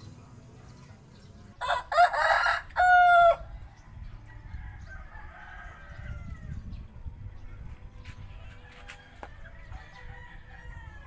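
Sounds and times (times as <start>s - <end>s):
rooster crowing: 1.6s - 3.5s.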